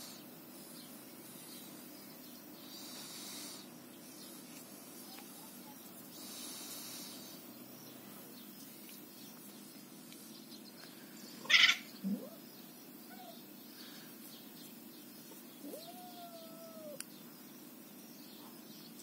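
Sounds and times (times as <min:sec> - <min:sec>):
cat crying: 0:11.5 - 0:12.4, 0:15.6 - 0:17.0.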